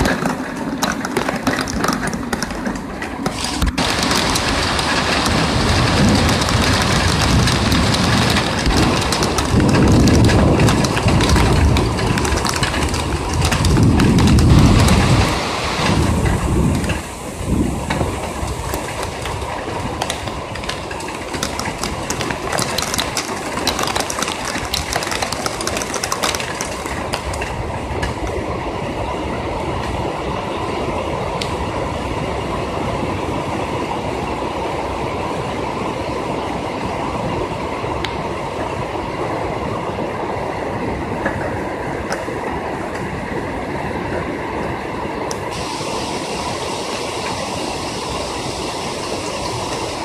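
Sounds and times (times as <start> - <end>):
heavy rain pelting: 0.0 - 50.0
rolling thunder: 3.3 - 28.6.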